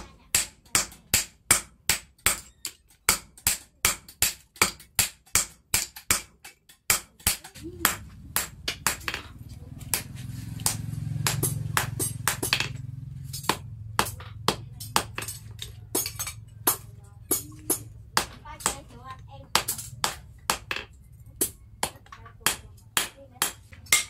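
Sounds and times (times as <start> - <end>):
hammer striking steel on anvil: 9.9 - 18.8, 19.6 - 24.0.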